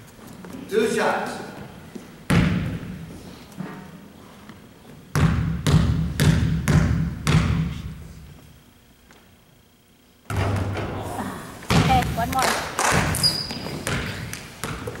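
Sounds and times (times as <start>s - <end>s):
basketball bouncing on gym floor: 2.3s - 3.0s, 5.1s - 8.0s, 11.7s - 15.0s.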